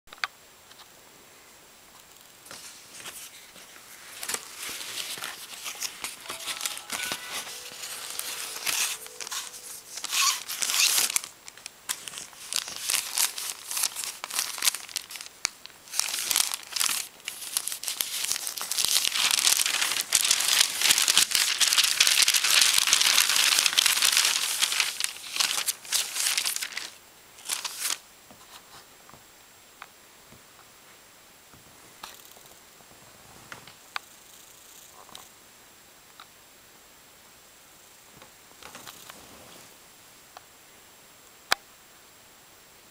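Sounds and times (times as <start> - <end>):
paper packing crinkling: 2.5 - 28.0.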